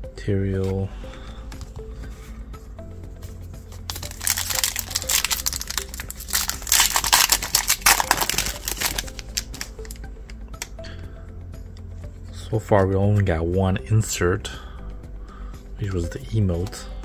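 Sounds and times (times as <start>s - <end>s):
background music: 0.0s - 17.0s
foil wrapper tearing and crinkling: 3.9s - 10.0s.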